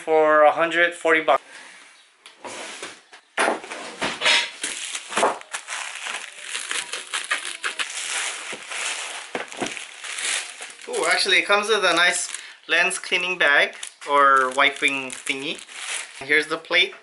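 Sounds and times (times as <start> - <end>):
plastic bag crinkling: 4.6 - 16.6.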